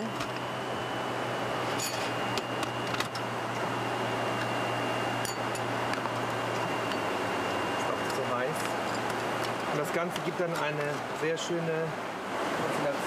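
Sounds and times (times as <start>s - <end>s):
airplane cabin noise: 0.0s - 13.0s
constant low hum: 0.0s - 13.0s
utensils and dishes clinking: 1.8s - 2.1s.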